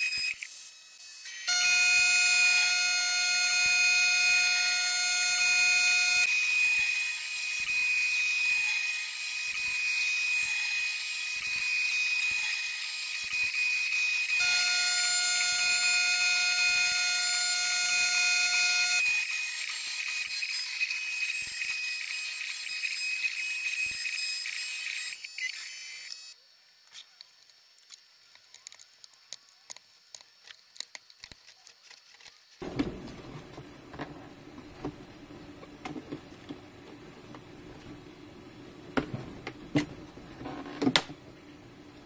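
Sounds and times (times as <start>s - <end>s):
router spindle high whine: 0.0s - 26.4s.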